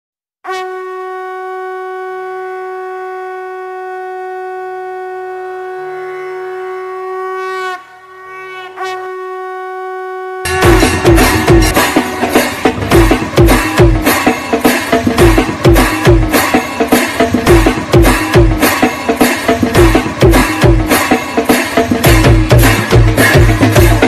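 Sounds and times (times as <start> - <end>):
conch shell blown: 0.4 - 24.0
loud drums and music: 10.5 - 24.0.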